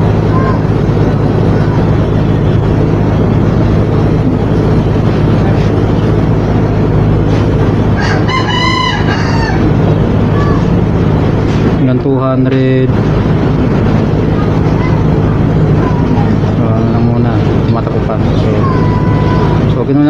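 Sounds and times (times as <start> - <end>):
air conditioner humming: 0.0 - 20.0
rooster crowing: 8.0 - 9.8.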